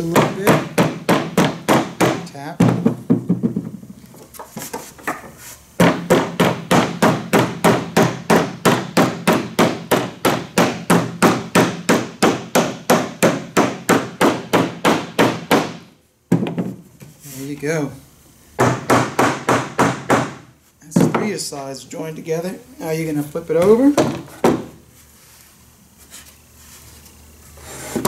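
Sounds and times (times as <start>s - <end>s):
rubber mallet knocking wood: 0.1s - 3.8s, 18.6s - 20.4s, 23.6s - 24.8s.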